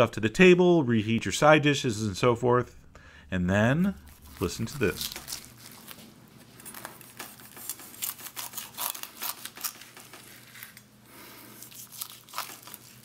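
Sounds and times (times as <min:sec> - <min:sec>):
knife slicing crisp skin: 0:07.0 - 0:09.8, 0:11.6 - 0:13.0.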